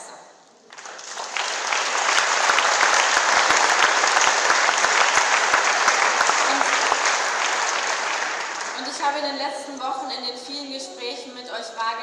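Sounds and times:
audience applauding: 0:00.7 - 0:09.3.

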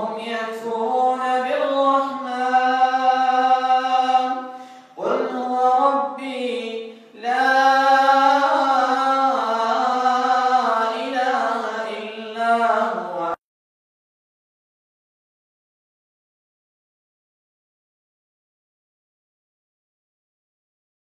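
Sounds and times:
man chanting: 0:00.0 - 0:13.4.

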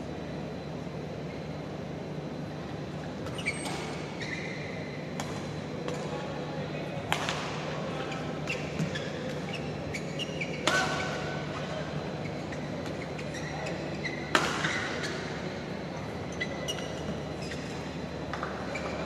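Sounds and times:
shoes squeaking on floor: 0:03.2 - 0:04.8, 0:08.0 - 0:15.3, 0:16.2 - 0:19.0.

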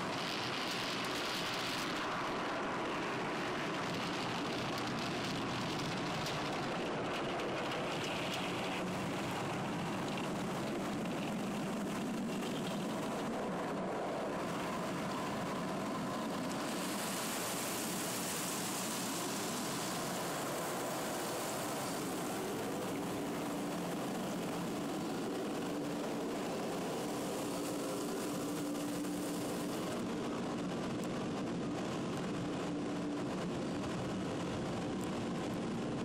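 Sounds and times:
high hiss: 0:16.5 - 0:24.7.

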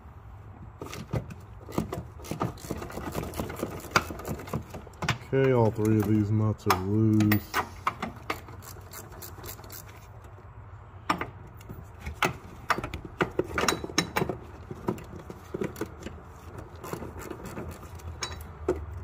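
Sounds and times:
metal tools clinking: 0:16.8 - 0:18.6.

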